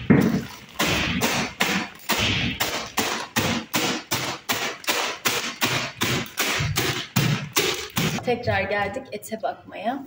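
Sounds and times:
bread pounded in plastic package: 0.0 - 8.2.

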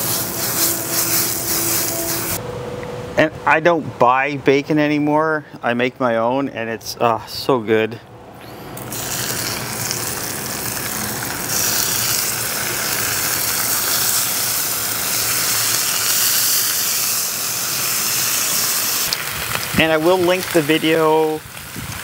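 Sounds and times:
bacon sizzling on a griddle: 0.0 - 2.4, 8.8 - 22.0.

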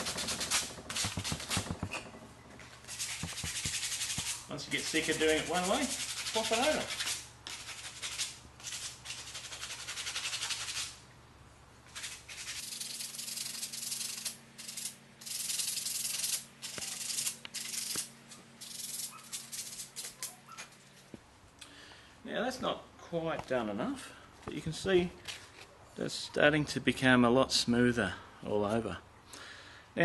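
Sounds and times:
sandpaper scraping wood: 0.0 - 1.9, 2.8 - 11.0, 11.9 - 20.4.

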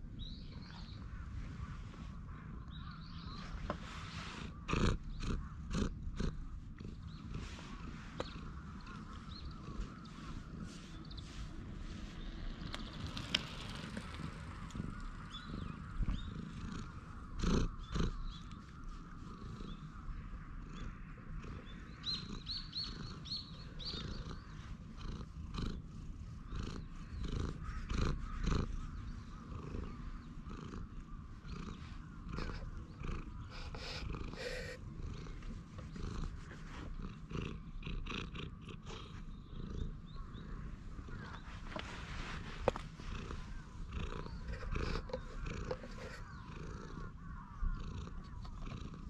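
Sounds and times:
cat purring: 0.0 - 49.0
fur and hand brushing microphone: 3.4 - 4.6, 7.4 - 12.8, 41.2 - 46.3.

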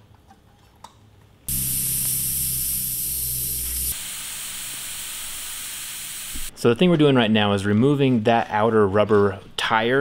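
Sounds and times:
air hissing from tire valve: 1.5 - 6.5.

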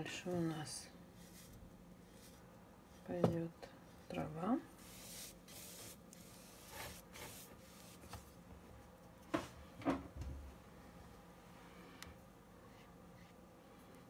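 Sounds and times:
soft brushing and rustling: 0.5 - 9.0.

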